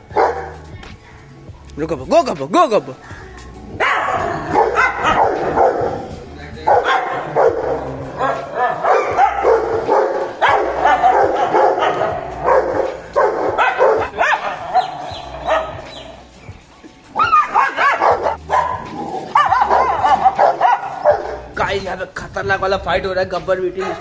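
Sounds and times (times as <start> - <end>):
dogs barking: 0.0 - 0.8, 3.6 - 21.6, 23.7 - 24.0.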